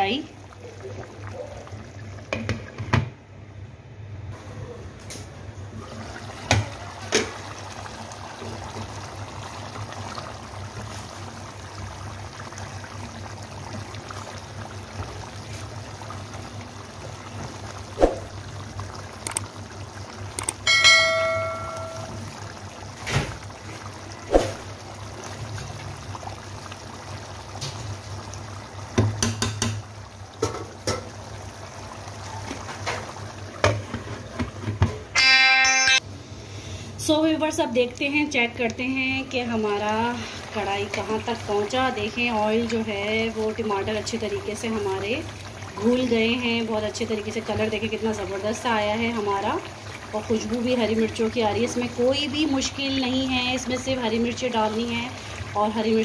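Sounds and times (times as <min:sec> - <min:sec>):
bubbling sizzle of simmering food: 0:00.0 - 0:35.2, 0:36.0 - 0:56.0
ringing clink: 0:20.7 - 0:22.2.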